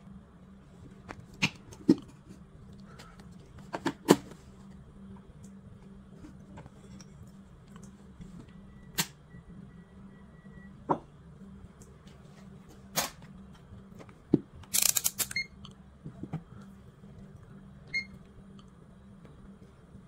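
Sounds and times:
low hum: 0.0s - 20.0s
circuit board handling noises: 14.6s - 15.4s.

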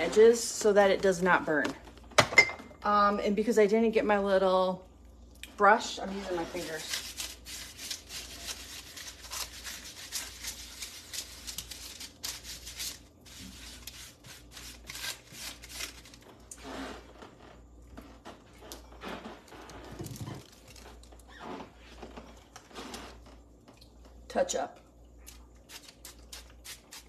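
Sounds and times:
fingers rubbing flatbread on paper: 6.1s - 16.0s.

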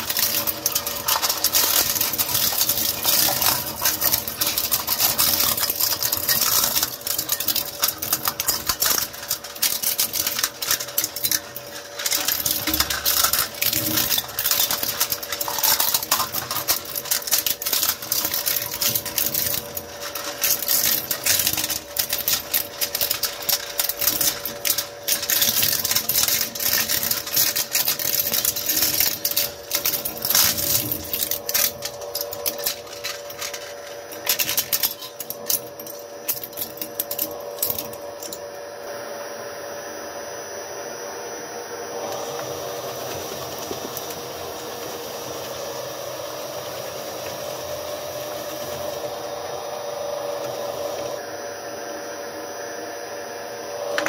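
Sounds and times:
plastic cracking in shredder: 0.0s - 38.4s.

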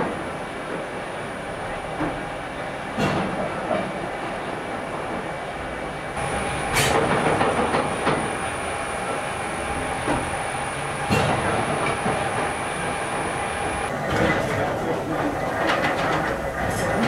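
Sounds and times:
steam engine mechanical clatter: 6.2s - 17.0s.

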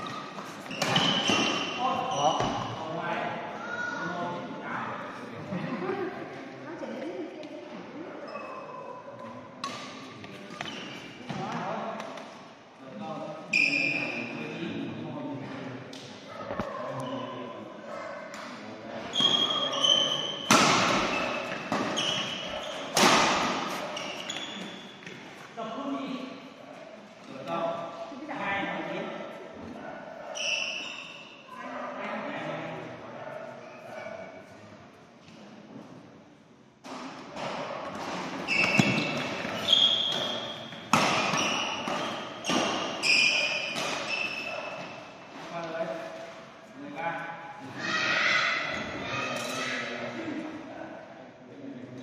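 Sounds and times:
rackets hitting shuttlecock: 0.0s - 1.7s, 20.4s - 25.2s, 36.8s - 44.9s
shoes squeaking on court: 0.0s - 2.8s, 10.3s - 11.4s, 19.0s - 25.5s, 30.2s - 31.4s, 38.2s - 45.5s
racket striking shuttlecock: 40.1s - 43.0s.

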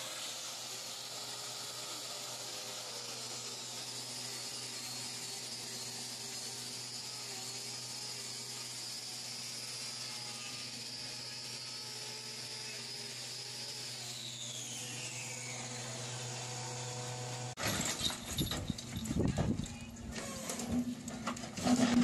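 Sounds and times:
disc grinder whine: 0.0s - 17.5s.

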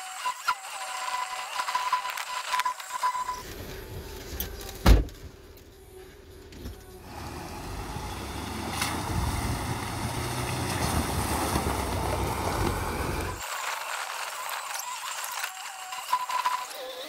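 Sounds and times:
car engine running low: 6.9s - 13.4s
water splashing around wheels: 7.5s - 13.5s.

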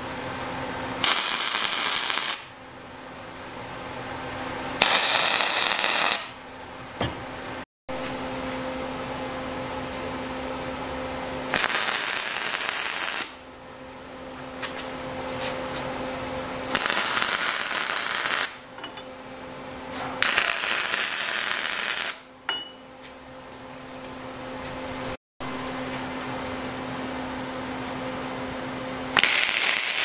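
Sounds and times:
steady low hum: 0.0s - 30.0s
arc welding crackle: 1.0s - 2.6s, 4.8s - 6.4s, 11.5s - 13.4s, 16.7s - 18.7s, 20.2s - 22.3s, 29.1s - 30.0s.

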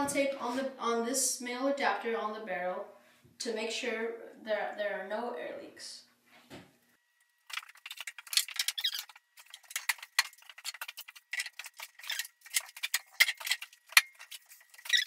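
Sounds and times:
plastic rubbing plastic squeaks: 7.5s - 15.0s.

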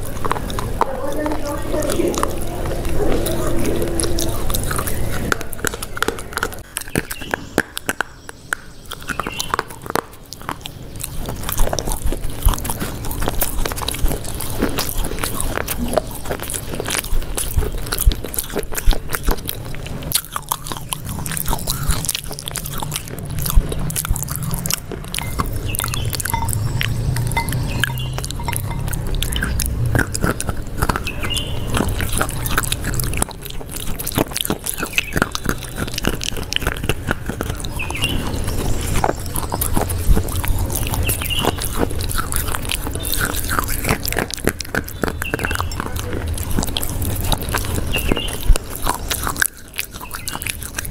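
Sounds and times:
low hum: 0.0s - 6.7s, 19.6s - 43.4s
crunchy snack chewing: 0.0s - 50.9s
mouth clicks: 0.0s - 50.9s.

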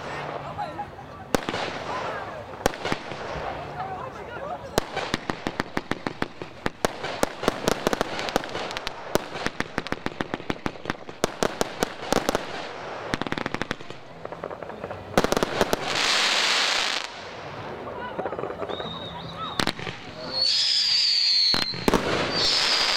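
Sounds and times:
fireworks bangs and pops: 0.0s - 3.9s, 4.6s - 22.9s
fireworks hissing fizz: 4.7s - 22.9s.

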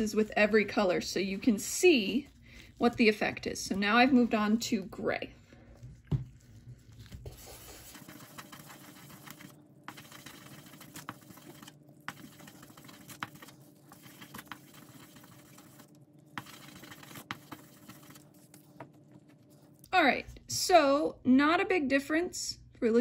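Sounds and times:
wet sanding scraping: 7.3s - 18.5s.

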